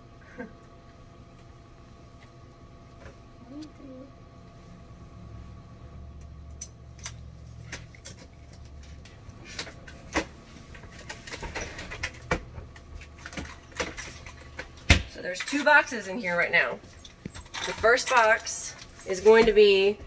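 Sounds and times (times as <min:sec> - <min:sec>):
low hum: 0:00.0 - 0:11.4.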